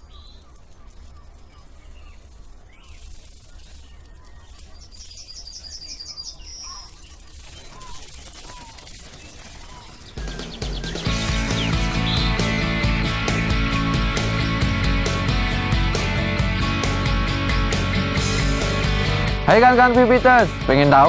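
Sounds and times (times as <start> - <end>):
faint bird chirps: 0.0 - 12.6
fast high bird trill: 0.0 - 16.0.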